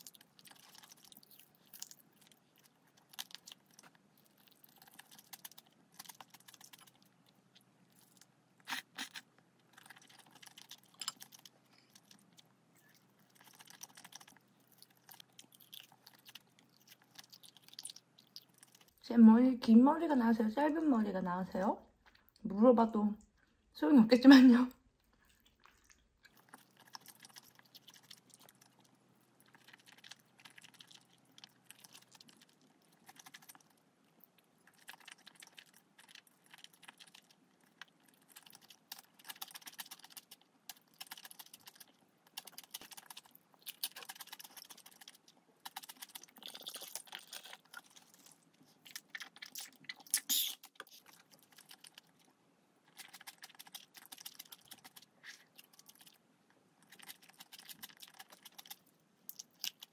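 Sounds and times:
person chewing noodles: 0.0s - 19.0s, 25.0s - 59.9s.

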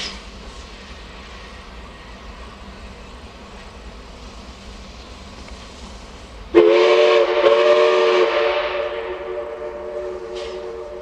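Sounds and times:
steam locomotive whistle: 6.5s - 11.0s.

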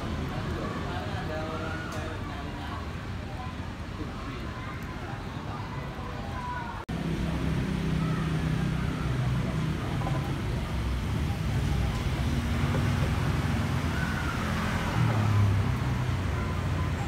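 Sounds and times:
faint voices: 0.0s - 17.0s
vehicle engines passing: 6.8s - 17.0s.

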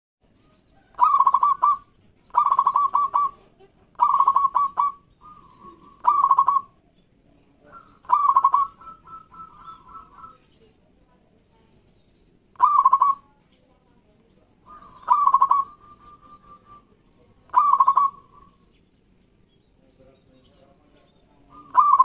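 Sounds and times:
dove cooing: 0.8s - 6.8s, 7.6s - 10.5s, 12.6s - 13.3s, 14.6s - 18.7s, 21.4s - 22.0s.

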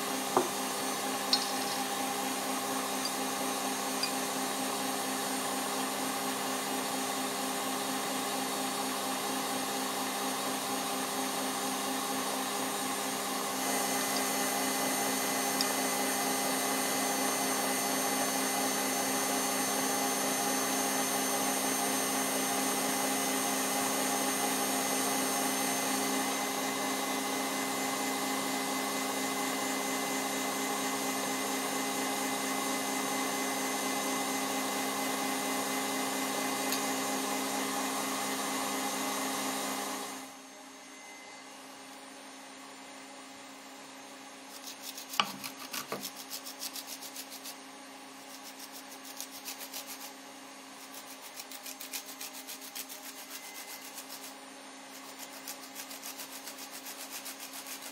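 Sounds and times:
stand mixer motor humming: 0.0s - 40.2s.

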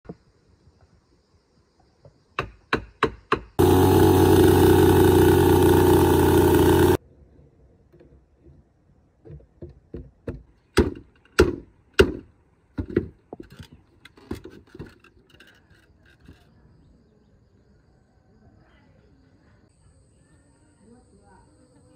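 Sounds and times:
chainsaw running at high speed: 3.6s - 7.0s
wooden knocks and taps: 9.2s - 12.2s, 12.8s - 15.0s.

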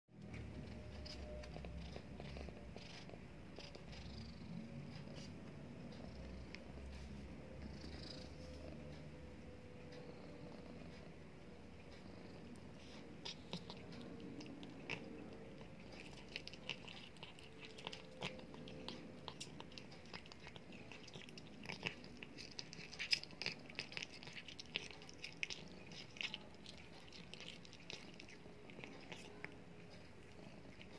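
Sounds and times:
cat crunching food: 0.2s - 4.1s, 11.8s - 30.9s.

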